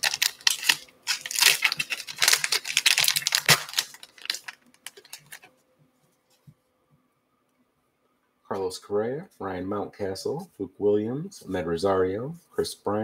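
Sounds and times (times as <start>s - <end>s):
card pack wrapper crinkling and tearing: 0.0s - 5.5s.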